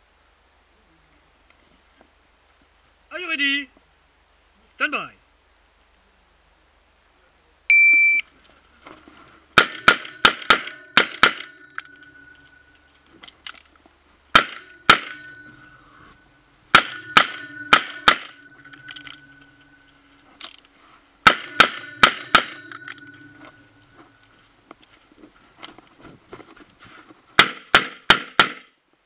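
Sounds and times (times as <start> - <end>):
revolver gunshots: 9.6 - 12.4, 14.3 - 16.1, 16.7 - 19.4, 21.2 - 23.5.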